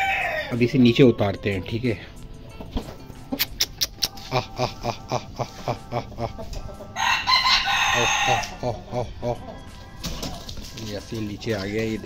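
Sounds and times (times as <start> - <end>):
rooster crowing: 0.0 - 0.6, 6.9 - 8.7
chickens clucking: 0.0 - 12.0.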